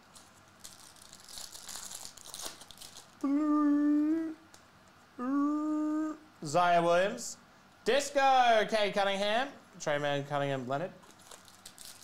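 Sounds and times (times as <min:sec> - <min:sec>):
plastic wrapper crinkling: 0:00.0 - 0:03.2, 0:11.0 - 0:12.0.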